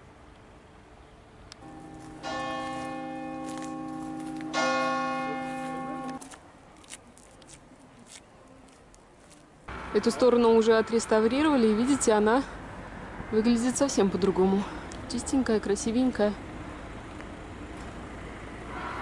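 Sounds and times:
church bell ringing: 1.6s - 6.2s.

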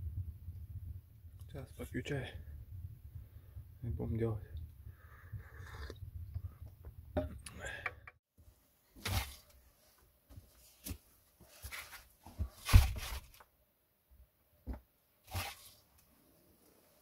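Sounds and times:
rustles and scrapes of movement: 8.9s - 13.5s, 15.2s - 17.0s.

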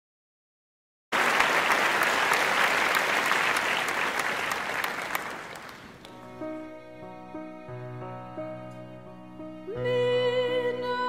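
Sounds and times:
crowd applauding: 1.1s - 6.3s.

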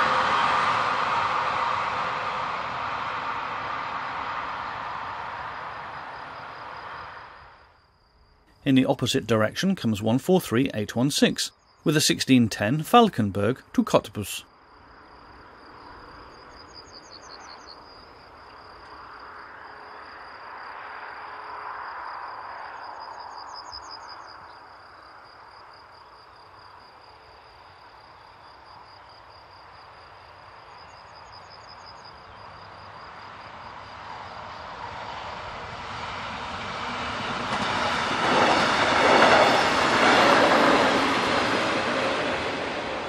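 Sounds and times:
train passing: 0.0s - 43.0s
high-pitched insect trill: 4.6s - 10.0s, 10.6s - 11.9s, 14.4s - 35.6s, 38.5s - 42.1s.

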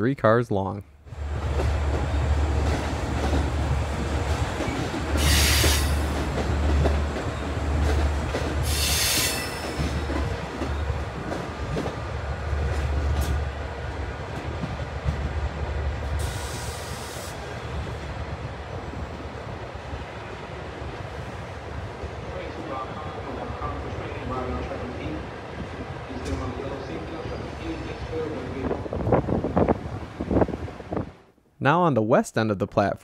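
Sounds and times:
diesel locomotive rumble: 1.1s - 31.2s
train wheels hissing: 4.2s - 10.4s, 16.0s - 17.8s.

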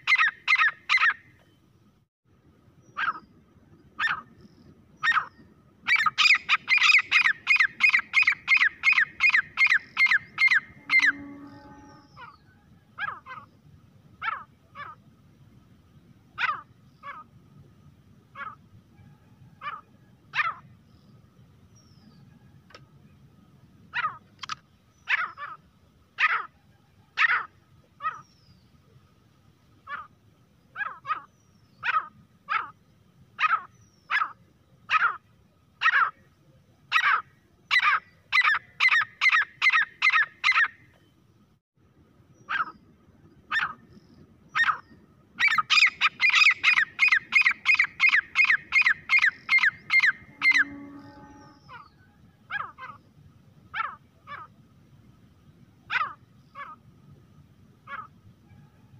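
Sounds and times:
francolin calling: 0.0s - 1.3s, 4.0s - 13.6s, 36.9s - 40.8s, 42.3s - 53.1s.

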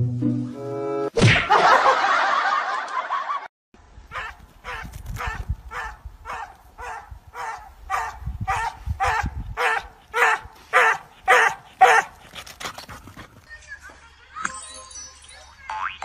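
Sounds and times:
small dog barking: 4.1s - 12.2s.

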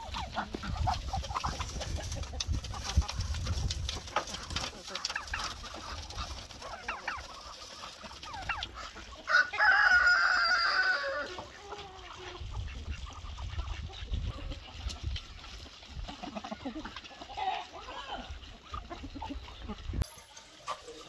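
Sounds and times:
chickens clucking: 0.0s - 21.0s
rooster crowing: 9.3s - 11.4s.

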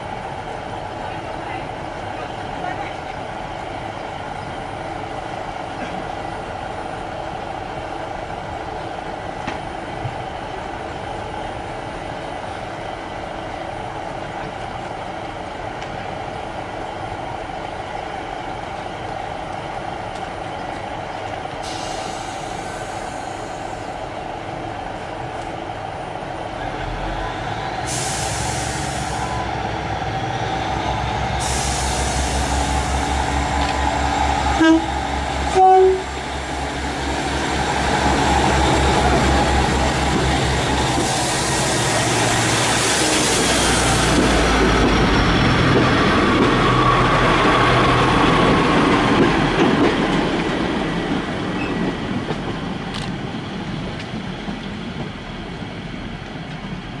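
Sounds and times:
diesel train engine idling: 18.7s - 49.6s
air brakes hissing: 21.6s - 24.0s, 27.8s - 29.4s, 31.3s - 33.3s.

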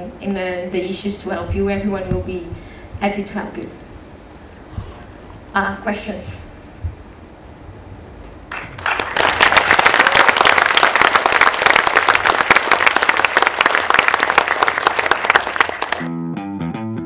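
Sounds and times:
audience applauding: 8.5s - 16.1s
music with plucked bass line: 16.1s - 17.0s.

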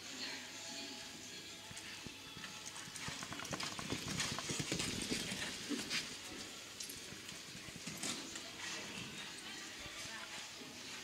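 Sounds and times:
horse hooves cantering on sand: 2.4s - 9.3s.

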